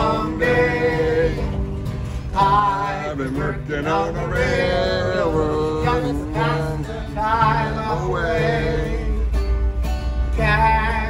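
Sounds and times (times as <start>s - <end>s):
strummed acoustic guitar: 0.0s - 11.0s.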